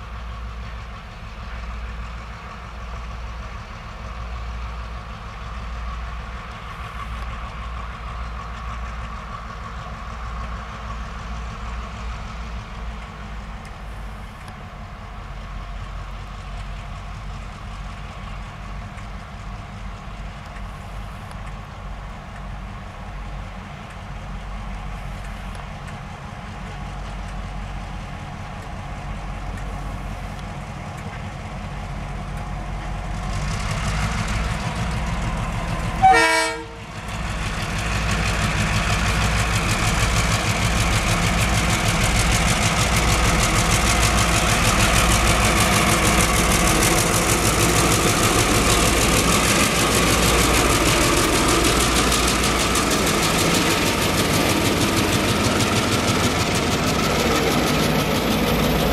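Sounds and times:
diesel locomotive engine rumble: 0.0 - 58.9
train wagons on rails: 0.0 - 58.9
train horn toot: 36.0 - 36.9.

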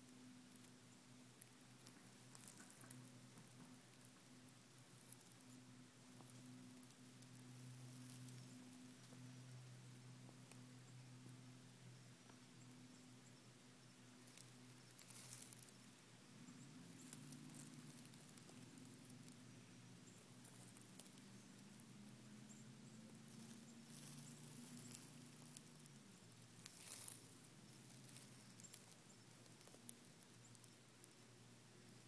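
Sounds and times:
faint low hum: 0.0 - 32.0
dry grass rustling and crunching: 14.2 - 15.8, 22.5 - 31.0.

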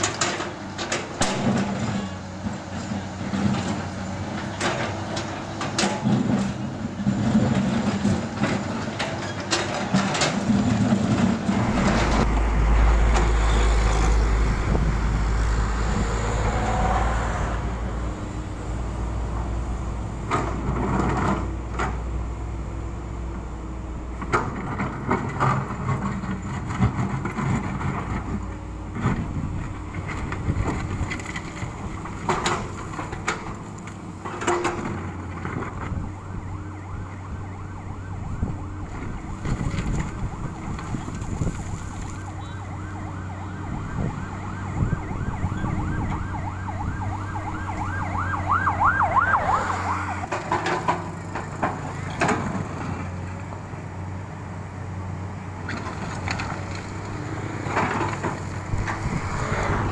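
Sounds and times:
bucket scraping and clanking on asphalt: 0.0 - 14.3, 20.2 - 22.0, 24.2 - 36.0, 38.9 - 42.9, 49.0 - 53.3, 55.7 - 59.9
excavator diesel engine running: 0.0 - 59.9.

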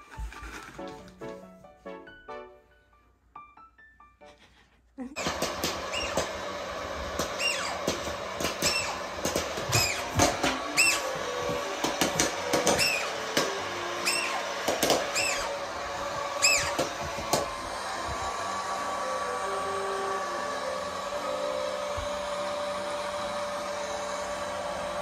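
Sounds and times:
popcorn popper fan blowing: 5.2 - 25.0
short high squeaks: 5.9 - 6.3, 7.4 - 7.8, 10.7 - 11.1, 14.0 - 14.4, 15.1 - 15.5, 16.4 - 16.8.

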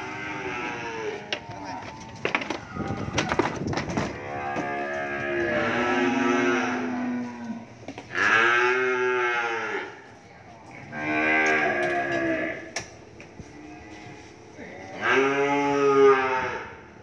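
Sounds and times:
cattle mooing: 0.0 - 2.1, 4.1 - 10.0, 10.8 - 12.7, 13.6 - 16.9.

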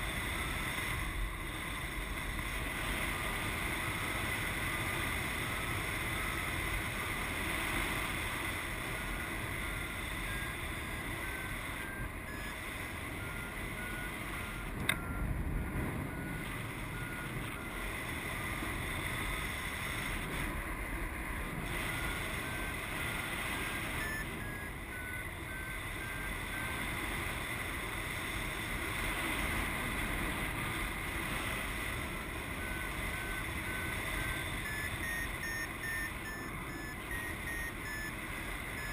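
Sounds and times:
variometer short beeps: 8.5 - 26.9, 32.2 - 38.9.

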